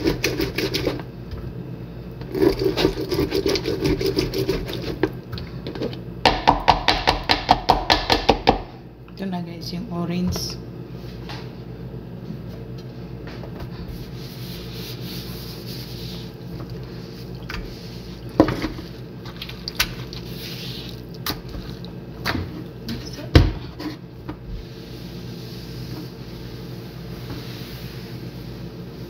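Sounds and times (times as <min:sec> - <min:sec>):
steady low hum: 0:00.0 - 0:29.0
towel wiping stone countertop: 0:13.9 - 0:18.2, 0:24.8 - 0:29.0.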